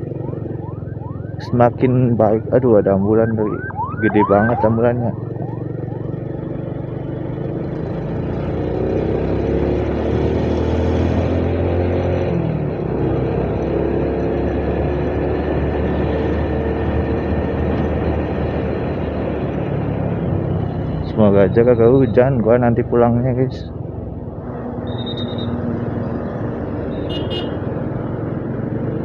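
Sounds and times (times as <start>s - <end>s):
road and wind noise: 0.0s - 29.0s
motorcycle engine running: 5.1s - 8.6s.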